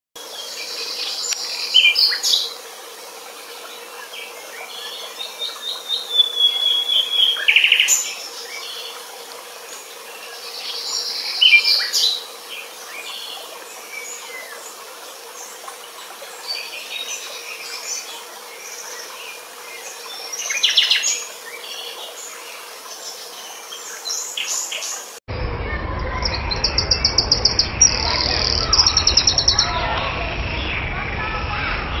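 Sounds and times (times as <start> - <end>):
bird whistling and buzzy song: 4.6 - 9.0, 10.2 - 14.6.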